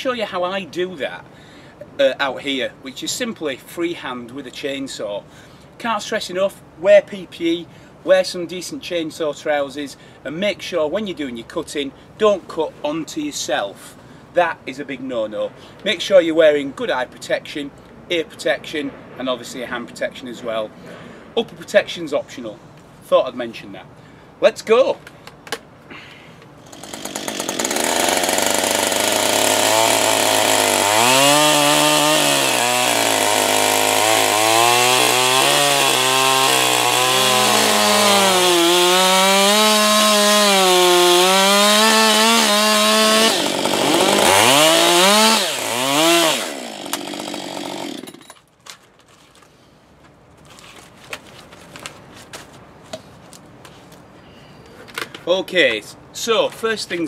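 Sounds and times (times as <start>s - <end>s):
chainsaw cutting log: 26.6s - 48.4s.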